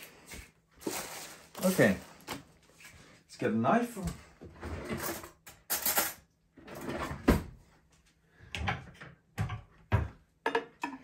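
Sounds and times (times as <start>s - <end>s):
drawer sliding and rattling: 6.6s - 7.5s.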